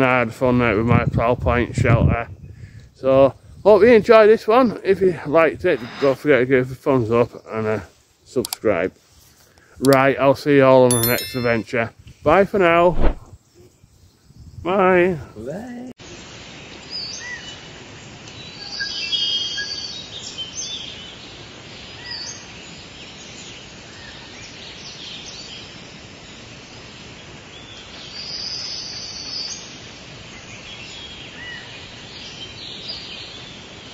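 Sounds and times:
steady background hiss: 0.0 - 33.9
birds singing and chirping: 18.3 - 25.7.

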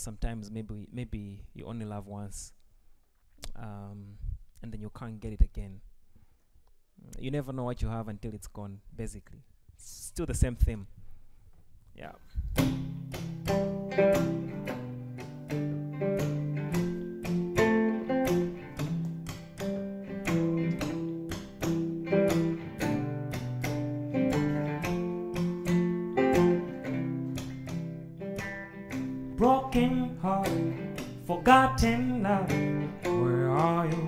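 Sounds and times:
acoustic guitar strumming: 12.6 - 34.0
man singing: 29.3 - 34.0.

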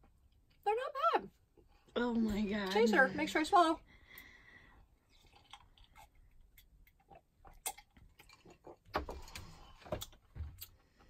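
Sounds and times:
person gulping a drink: 5.0 - 10.2.

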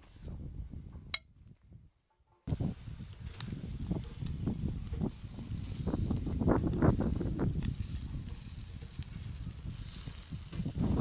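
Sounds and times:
wind rumbling on microphone: 0.0 - 11.0
meat sizzling on a grill: 2.5 - 11.0.

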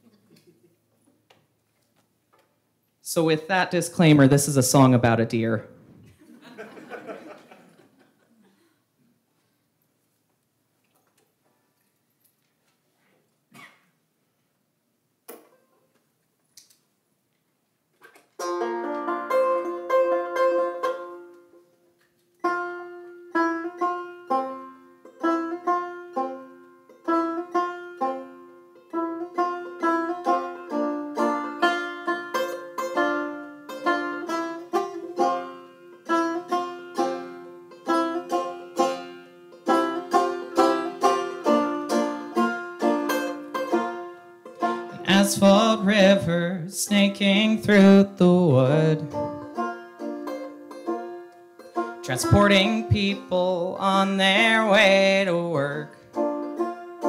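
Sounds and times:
banjo picking: 18.0 - 21.8, 22.4 - 57.0.

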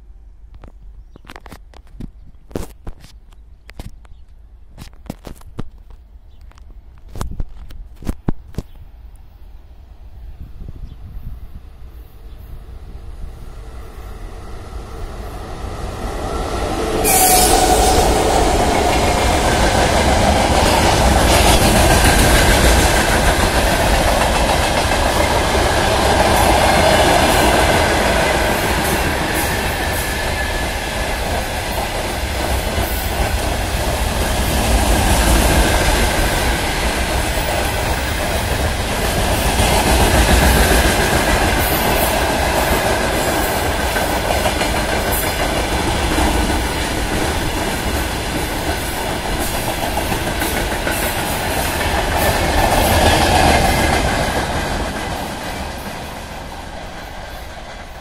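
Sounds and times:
train wheels clattering over rails: 16.3 - 58.0.

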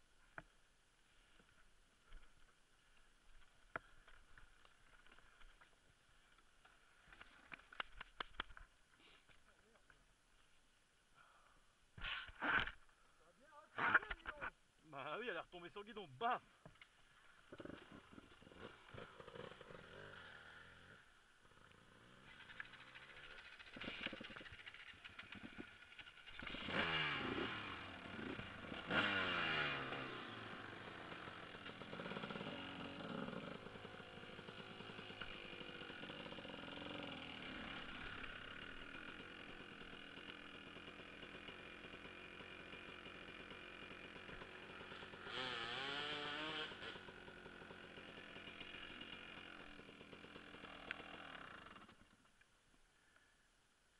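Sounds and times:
dirt bike engine revving: 17.4 - 52.0.

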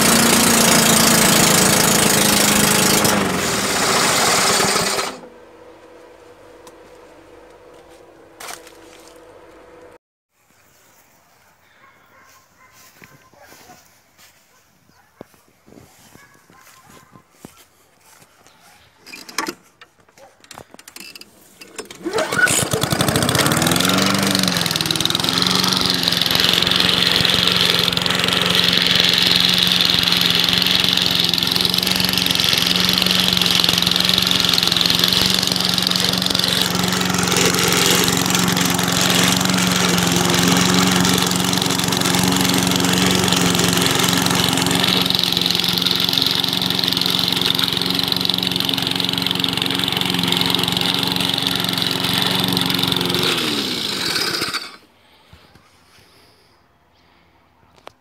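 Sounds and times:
lawn mower engine running: 0.0 - 10.0, 20.5 - 54.8.

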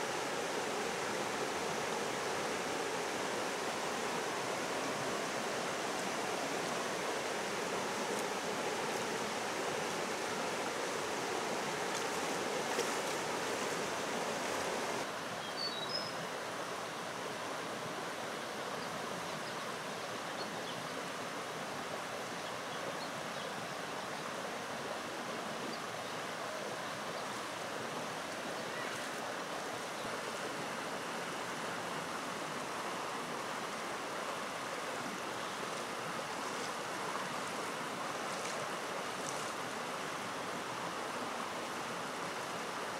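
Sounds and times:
water rushing over stones: 0.0 - 15.2, 26.4 - 42.9.

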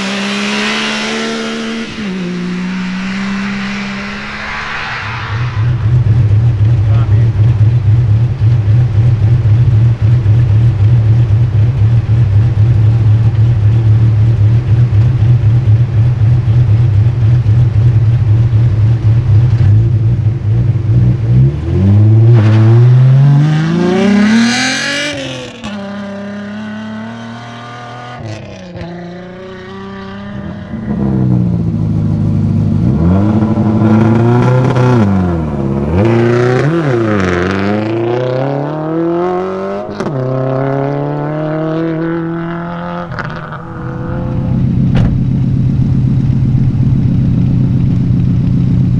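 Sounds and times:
rally car engine idling and revving: 0.0 - 4.8, 5.6 - 48.9.

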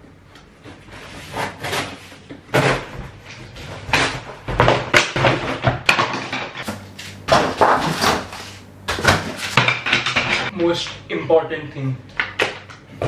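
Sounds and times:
cardboard being cut and torn: 1.0 - 2.9, 7.1 - 9.6.

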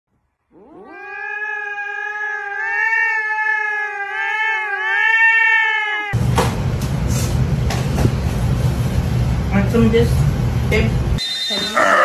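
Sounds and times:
cat meowing: 0.5 - 6.2.

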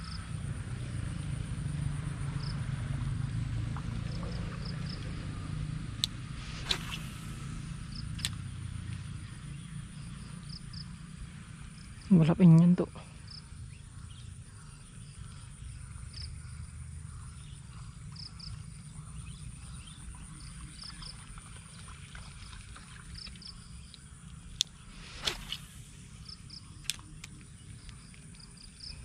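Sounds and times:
insects chirping: 0.0 - 29.0
low background rumble: 0.0 - 29.0
brief swish: 6.0 - 8.3, 24.9 - 26.6
sharp clicks: 6.0 - 8.4.

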